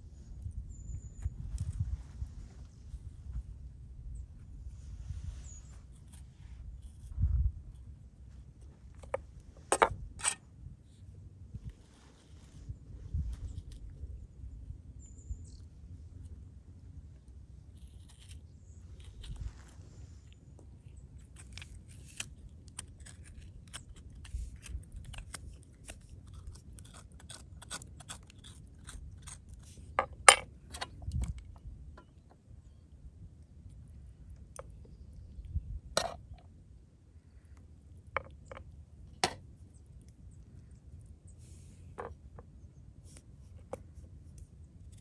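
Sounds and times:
knife cutting tomato: 17.8s - 18.4s, 21.2s - 29.7s.

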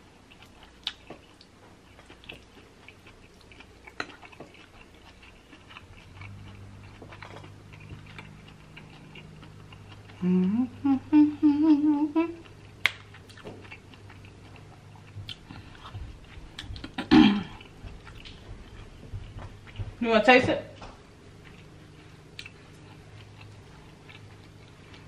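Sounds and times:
faint low hum: 0.0s - 25.0s
person humming mm: 10.2s - 12.4s.

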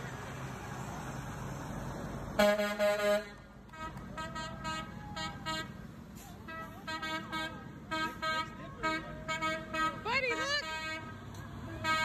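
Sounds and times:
truck horns honking: 2.3s - 12.0s.

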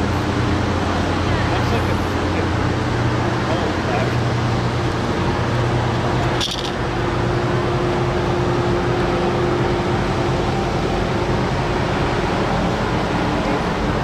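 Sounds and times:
ship engines droning: 0.0s - 14.0s.

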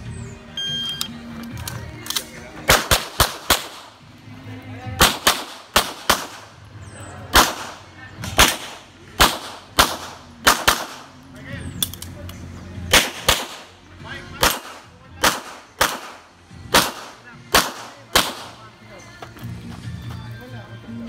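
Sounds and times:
gunshots with echo: 2.7s - 3.9s, 5.0s - 6.6s, 7.3s - 11.1s, 12.9s - 13.7s, 14.4s - 18.6s.

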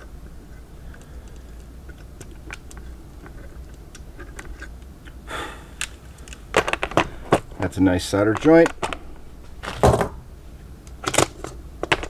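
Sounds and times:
soldering ticks and crackles: 0.2s - 5.2s, 5.8s - 9.1s.

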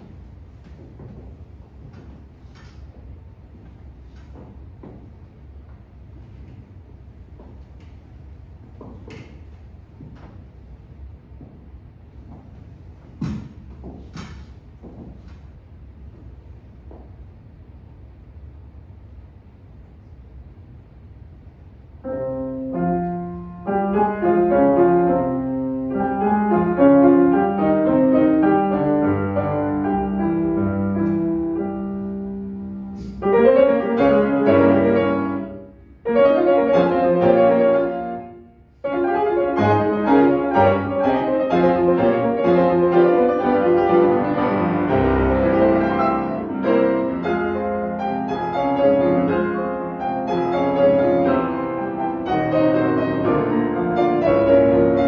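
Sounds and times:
two pianos playing: 0.0s - 4.9s, 22.0s - 55.0s.

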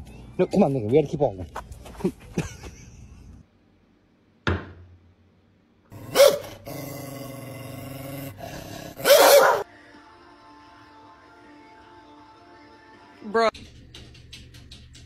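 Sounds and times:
dog barking: 6.1s - 6.6s, 9.0s - 9.7s.

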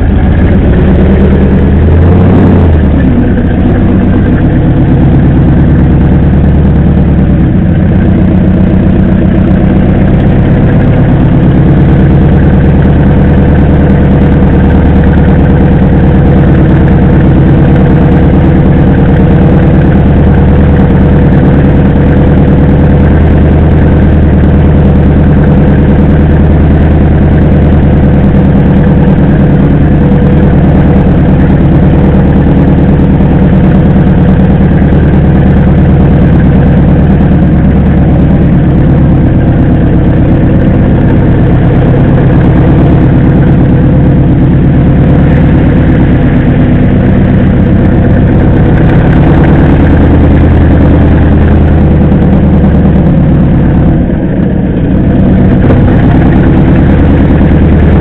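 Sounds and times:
engine droning: 0.0s - 58.0s.

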